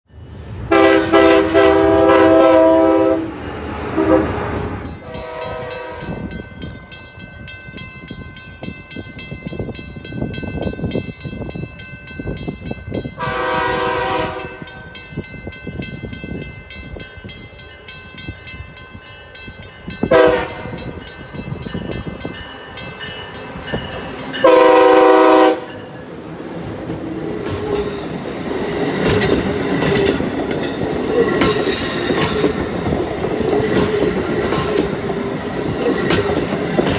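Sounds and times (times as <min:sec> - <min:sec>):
train horn blasts: 0:00.7 - 0:06.4, 0:13.2 - 0:15.0, 0:20.0 - 0:21.0, 0:24.4 - 0:25.9
train wheels clattering: 0:19.7 - 0:36.9.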